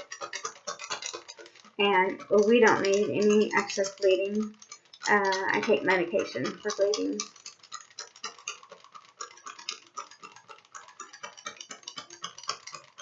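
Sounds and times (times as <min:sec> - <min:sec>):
plastic packaging clicking and rustling: 0:00.0 - 0:01.8.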